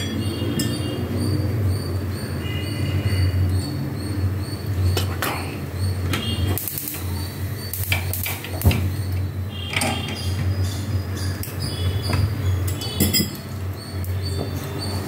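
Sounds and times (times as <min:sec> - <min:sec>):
seeds popping in hot oil: 0:06.1 - 0:09.1.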